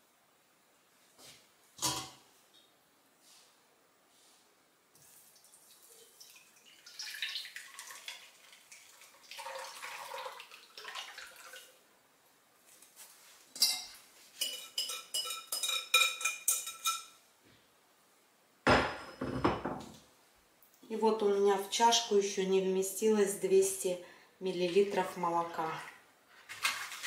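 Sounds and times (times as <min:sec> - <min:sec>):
whisk scraping metal sieve: 0:26.4 - 0:27.0.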